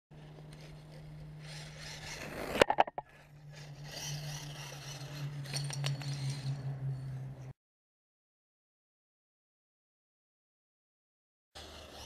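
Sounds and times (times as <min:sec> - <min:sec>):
toy car tyres and motor rushing: 0:00.1 - 0:07.5, 0:11.6 - 0:12.0.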